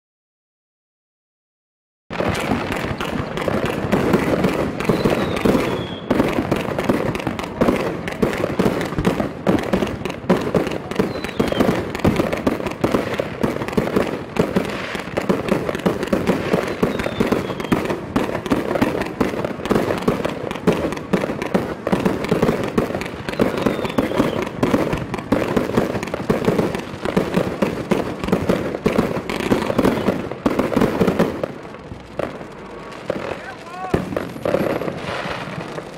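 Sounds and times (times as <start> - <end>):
firework bursts crackling: 2.1 - 35.9.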